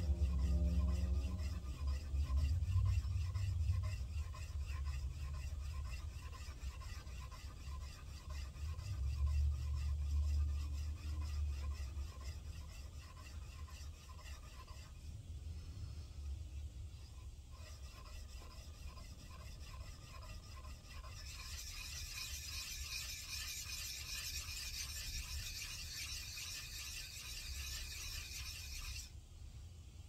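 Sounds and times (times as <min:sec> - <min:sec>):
low rumble: 0:00.0 - 0:04.1
metal scraping on stone: 0:00.0 - 0:15.2, 0:16.9 - 0:29.1.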